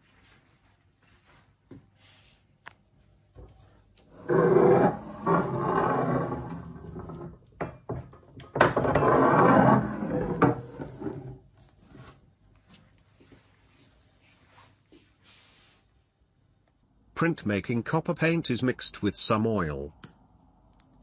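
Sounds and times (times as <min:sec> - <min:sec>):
press roller rumbling grind: 0:04.1 - 0:07.3, 0:08.6 - 0:11.4.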